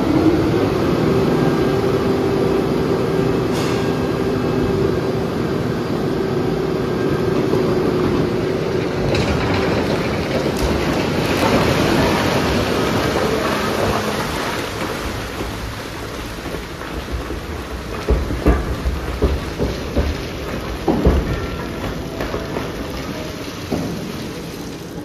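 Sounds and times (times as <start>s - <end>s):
heavy machinery hum: 0.0s - 25.0s
rock grinding in crusher: 6.6s - 25.0s.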